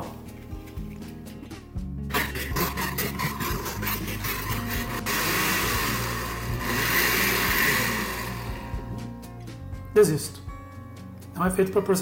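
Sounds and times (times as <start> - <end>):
blender motor grinding peanuts: 2.1 - 9.1.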